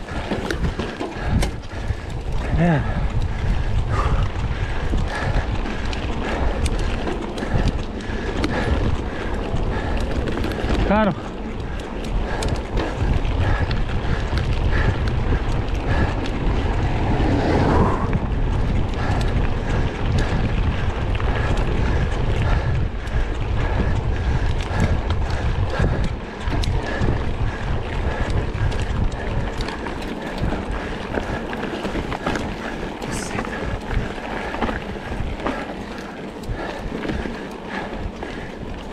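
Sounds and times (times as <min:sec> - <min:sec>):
small clicks and rattles: 0:00.0 - 0:02.5, 0:03.1 - 0:16.8
wind buffeting microphone: 0:00.0 - 0:38.9.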